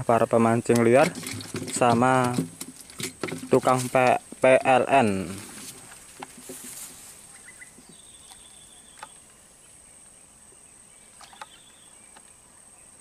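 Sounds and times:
insects buzzing: 0.0s - 13.0s.

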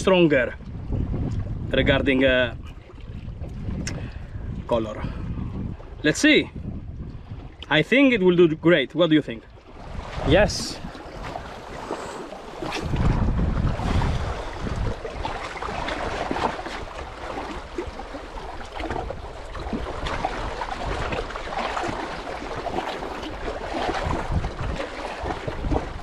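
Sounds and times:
wind rumbling on microphone: 0.0s - 26.0s
waves lapping on rocks: 9.7s - 26.0s.

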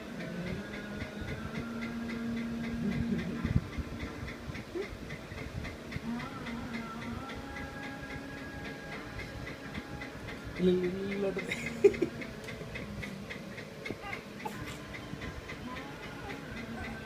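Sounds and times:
faint steady ticking: 0.0s - 17.0s.

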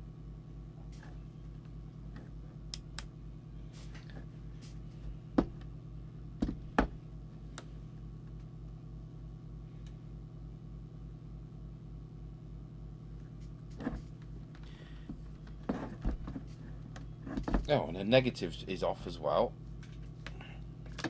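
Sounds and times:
low electrical hum: 0.0s - 21.0s
test probes rustling: 3.6s - 5.7s, 13.3s - 18.0s.

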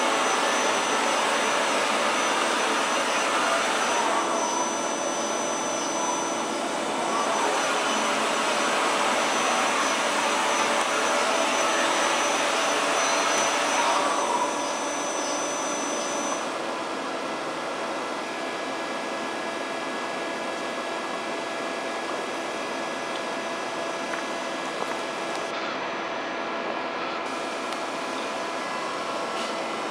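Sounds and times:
thin high whine: 0.0s - 29.9s.

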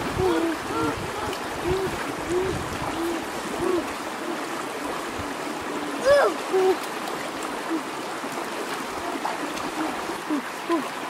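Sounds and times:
stream running over rocks: 0.0s - 11.0s.

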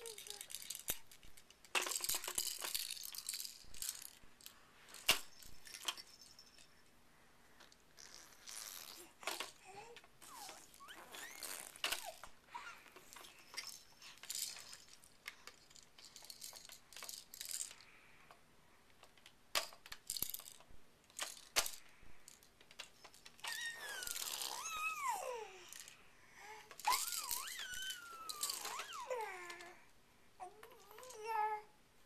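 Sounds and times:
plastic toy clicking and rattling: 0.0s - 6.4s, 9.2s - 17.8s, 18.9s - 25.0s, 26.7s - 29.8s.

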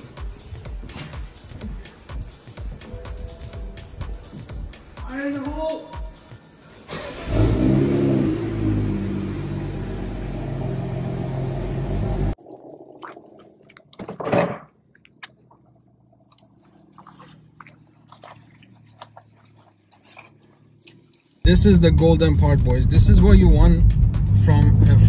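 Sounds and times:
car engine starting and idling: 6.6s - 12.4s, 21.5s - 25.0s.

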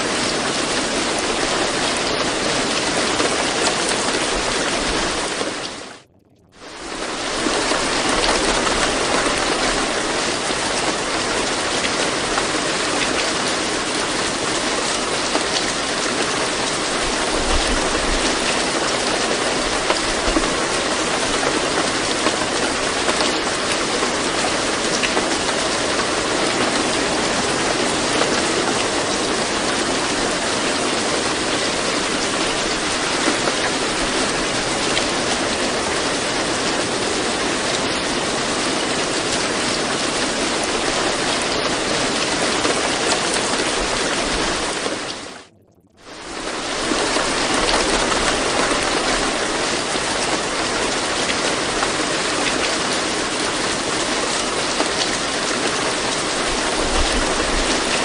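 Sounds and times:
steady rain hiss: 0.0s - 6.0s, 6.6s - 58.0s.

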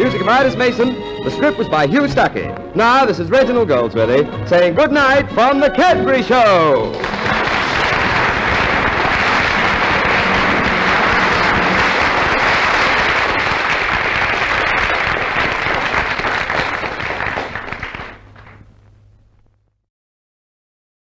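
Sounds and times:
audience applauding: 6.5s - 18.7s.

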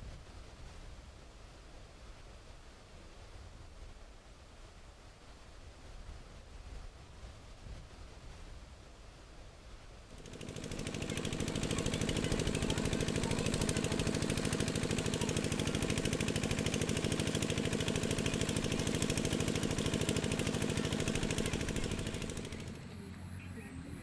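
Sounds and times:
engine chugging: 10.1s - 24.0s.

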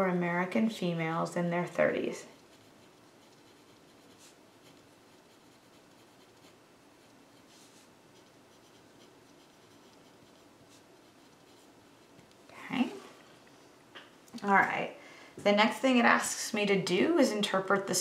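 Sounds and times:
pencil scratching on paper: 1.6s - 12.2s.

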